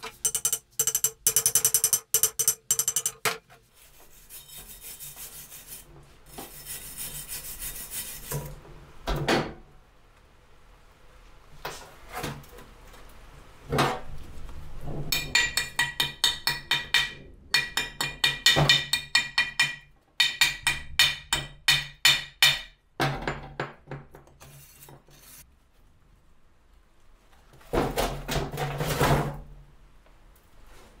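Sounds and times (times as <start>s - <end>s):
wire brush scrubbing metal disc: 0.0s - 8.5s.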